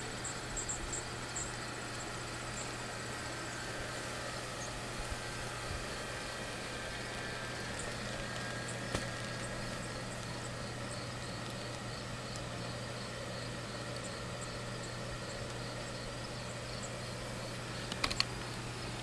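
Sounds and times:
blower fan humming and hissing: 0.0 - 19.0
sharp click: 17.9 - 18.3.

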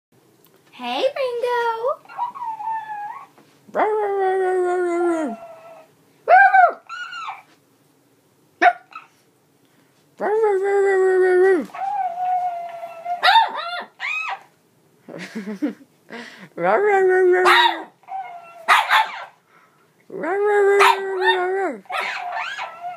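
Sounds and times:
puppy yelps and barks: 2.0 - 3.3, 5.4 - 7.5, 8.6 - 9.2, 11.7 - 14.5, 17.4 - 19.4, 20.8 - 22.9
puppy howling whines: 2.0 - 3.4, 4.4 - 7.5, 11.0 - 14.5, 17.4 - 19.4, 20.7 - 22.9.

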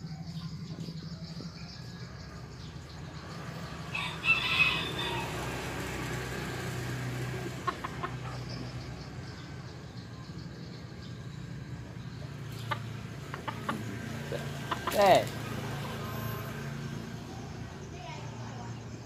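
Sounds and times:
rooster crowing: 3.9 - 5.8.

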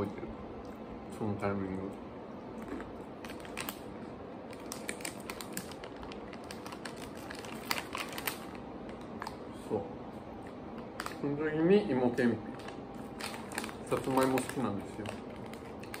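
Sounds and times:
crunchy snack chewing: 2.5 - 3.9
plastic snack bag crinkling: 2.6 - 9.5, 12.2 - 16.0.

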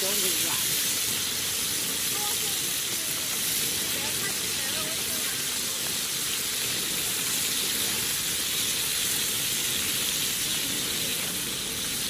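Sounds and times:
steaks sizzling in pan: 0.0 - 12.0.

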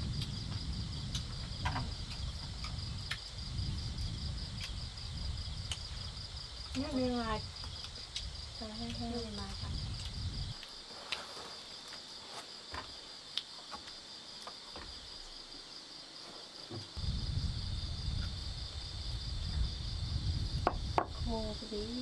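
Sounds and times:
low rumble: 0.0 - 10.6, 17.0 - 22.0
insects chirping: 0.0 - 22.0.

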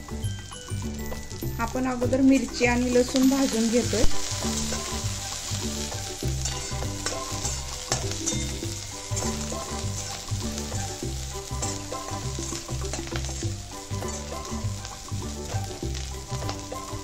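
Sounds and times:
food sizzling in oil: 0.0 - 17.0
metal spatula scraping pan: 4.2 - 14.6.

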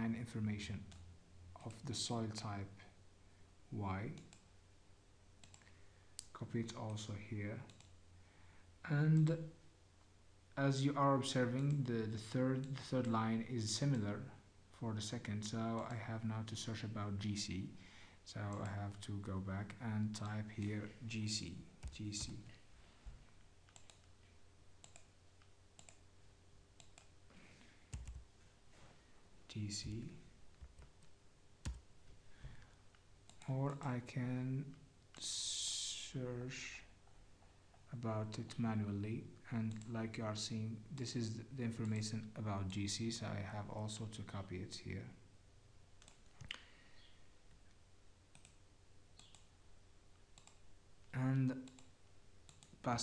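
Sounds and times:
computer mouse clicks: 4.1 - 4.5, 5.4 - 6.3, 7.7 - 8.0, 23.6 - 24.2, 24.8 - 26.0, 26.8 - 27.2, 39.7 - 39.9, 46.0 - 46.6, 48.3 - 48.6, 49.2 - 49.5, 50.4 - 50.6, 51.6 - 52.8
computer mouse and keyboard clicks: 23.7 - 24.2.

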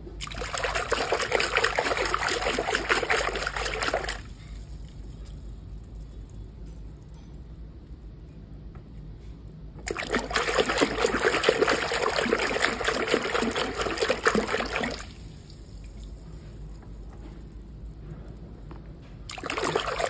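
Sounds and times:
splashing and sloshing water: 0.2 - 6.0, 9.8 - 17.5, 19.2 - 20.0.

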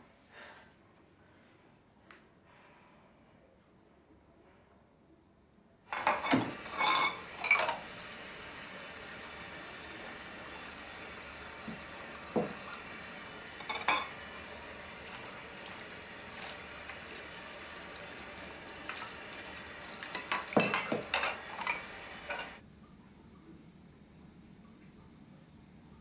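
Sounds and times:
steady room hiss: 0.0 - 26.0
glasses and dishes clinking: 5.9 - 7.9, 13.6 - 14.3, 20.1 - 22.6.

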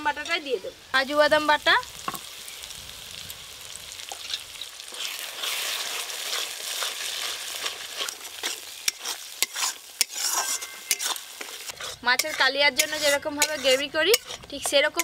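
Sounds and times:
gravy sizzling in a pan: 0.0 - 15.0
metal spatula scraping a pan: 4.2 - 15.0.

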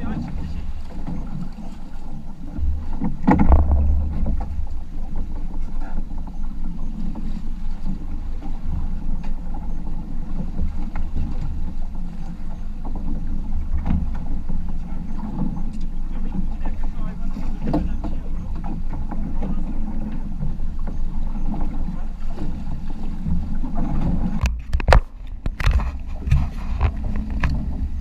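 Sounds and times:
sea and boat noise: 0.0 - 28.0
wind buffeting microphone: 0.0 - 28.0.

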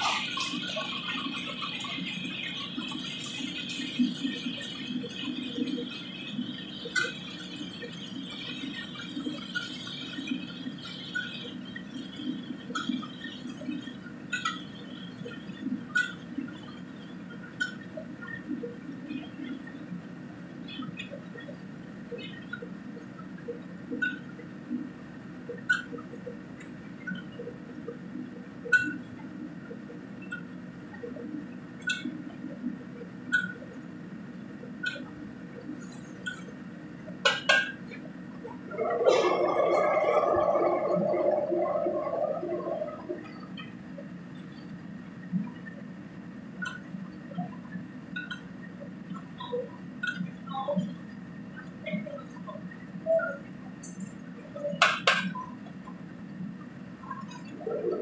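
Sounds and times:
low hum: 37.9 - 52.8.

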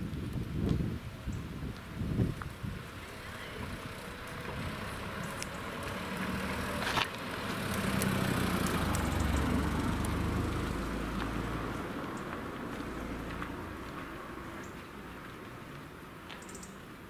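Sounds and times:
car driving past: 2.9 - 14.6.

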